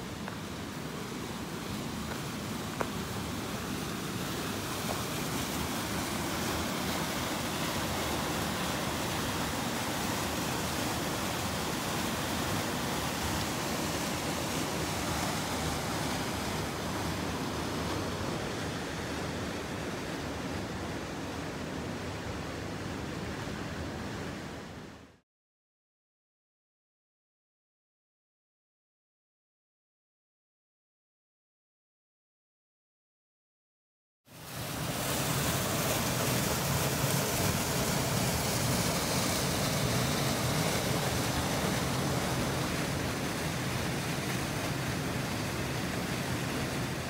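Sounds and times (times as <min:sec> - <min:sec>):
creek water pouring into pool: 0:00.1 - 0:19.8, 0:34.3 - 0:47.0.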